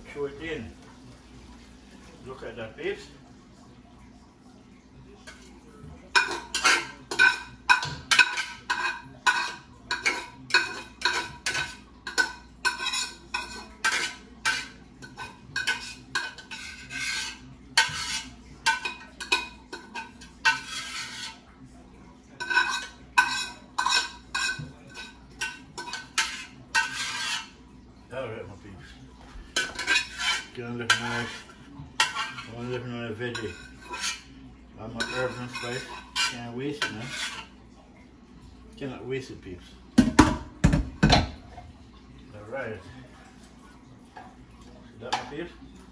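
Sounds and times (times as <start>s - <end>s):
spoon scraping a cooking pot: 5.3s - 21.5s, 22.3s - 27.6s, 28.8s - 37.6s.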